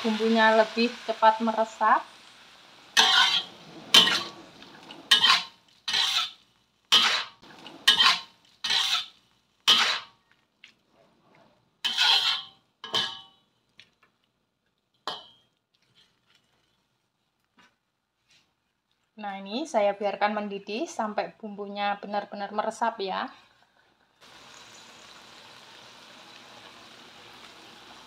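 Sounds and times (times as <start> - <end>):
metal spatula scraping wok: 2.9 - 10.2, 11.1 - 13.4, 15.1 - 16.9.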